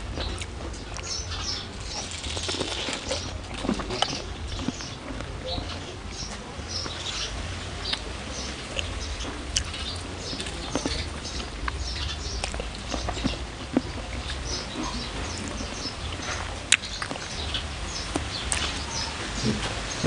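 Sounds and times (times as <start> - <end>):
steady low rumble: 0.0 - 20.0
wet chewing mouth clicks: 1.9 - 5.8, 7.8 - 19.0.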